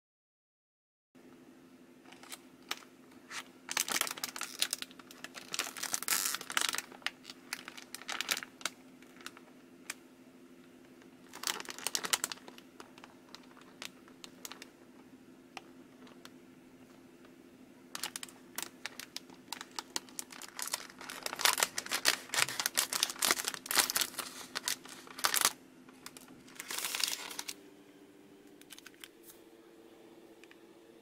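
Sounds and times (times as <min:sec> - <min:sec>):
steady low hum: 0:01.2 - 0:31.0
plastic wrapper crinkling: 0:02.1 - 0:10.0, 0:10.9 - 0:14.8, 0:15.6 - 0:16.4, 0:17.9 - 0:27.6, 0:28.6 - 0:29.4.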